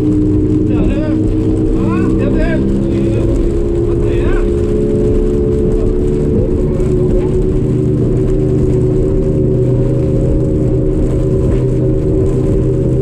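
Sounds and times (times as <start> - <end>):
hull and water rumble: 0.0 - 13.0
outboard motor running hard: 0.0 - 13.0.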